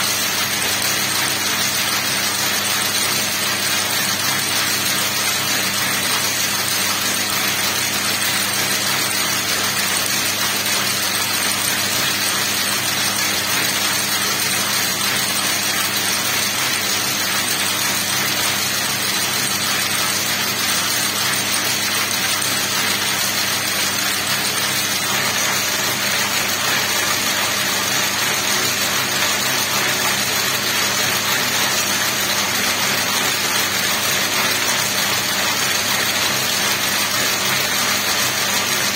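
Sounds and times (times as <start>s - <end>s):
braiding machine whirring: 0.0s - 38.9s.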